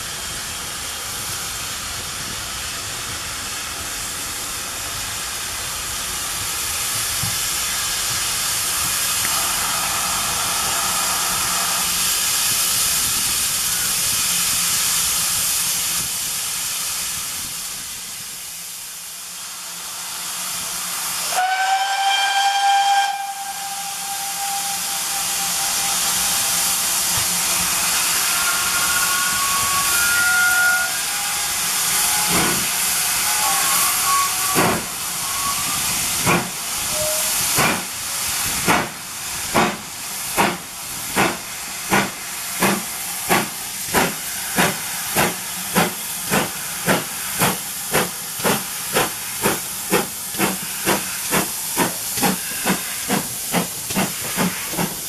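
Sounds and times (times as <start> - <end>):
steam locomotive hissing steam: 0.0 - 55.0
steam whistle: 21.2 - 26.9, 27.9 - 36.0, 36.8 - 37.4.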